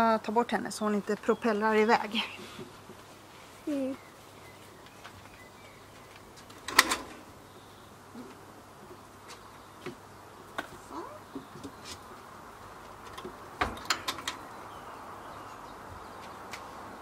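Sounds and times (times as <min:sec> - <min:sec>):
metal latch clattering: 0:06.6 - 0:07.2, 0:13.1 - 0:14.4.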